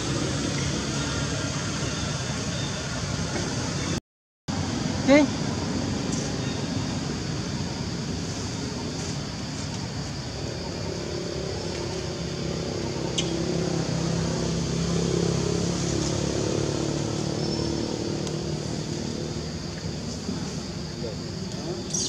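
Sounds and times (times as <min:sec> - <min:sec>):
vehicle engine passing: 0:12.4 - 0:20.5.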